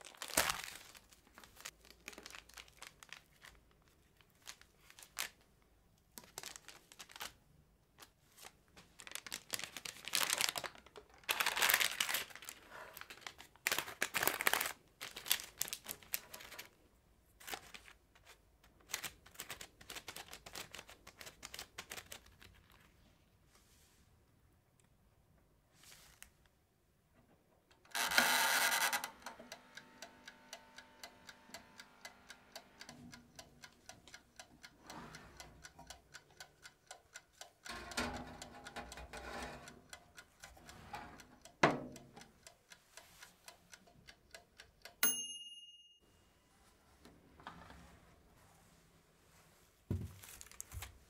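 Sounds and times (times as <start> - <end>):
cling film and parchment crinkling: 0.0 - 5.6, 6.2 - 7.4, 8.0 - 16.8, 50.2 - 51.0.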